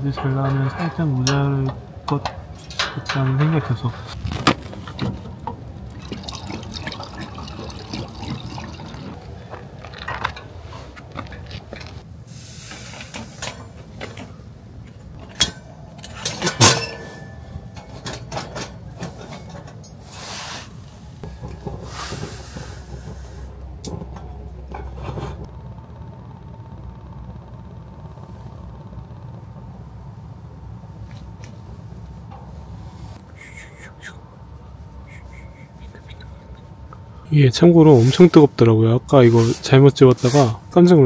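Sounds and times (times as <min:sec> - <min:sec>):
metal clicks and clanks: 0:00.0 - 0:05.6, 0:15.1 - 0:20.0
kerosene trickling through a funnel: 0:04.2 - 0:12.0.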